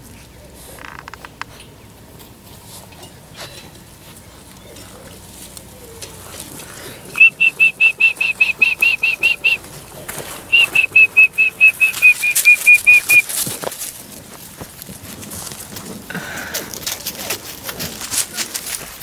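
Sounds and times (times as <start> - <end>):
bird whistling short high notes: 10.5 - 13.2.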